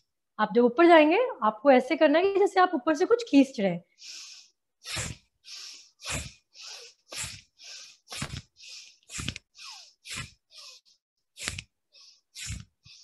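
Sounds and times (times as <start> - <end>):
forceful breathing: 3.9 - 13.0.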